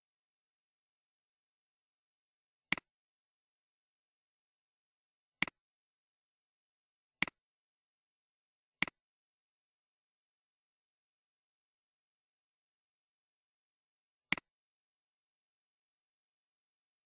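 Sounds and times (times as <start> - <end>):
computer mouse clicks: 2.7 - 3.0, 14.3 - 14.5.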